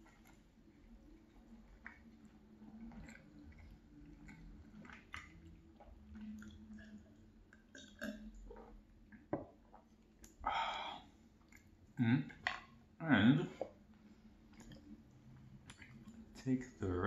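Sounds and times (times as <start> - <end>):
chewing and lip smacks: 0.0 - 10.4, 11.4 - 12.4, 14.5 - 16.4.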